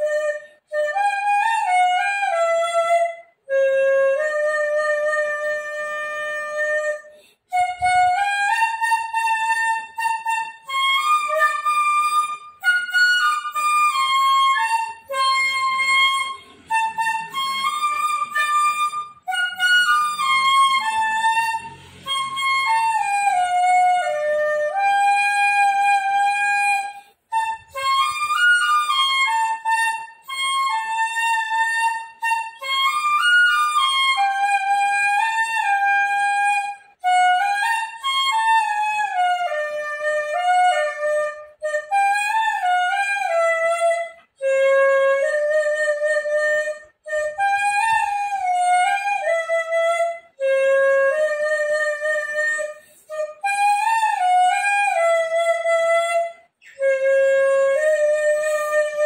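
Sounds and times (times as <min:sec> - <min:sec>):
bamboo flute melody: 0:00.0 - 0:59.0
quick breaths: 0:07.1 - 0:07.5.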